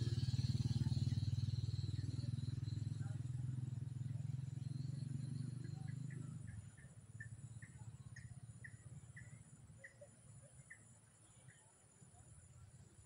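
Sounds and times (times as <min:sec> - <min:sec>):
low motor hum: 0:00.0 - 0:06.8.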